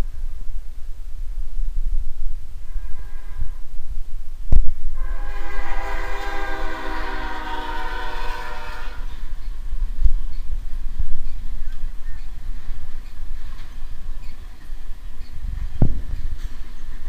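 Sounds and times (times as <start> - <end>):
locomotive air horn: 2.6 - 3.7, 5.0 - 9.3.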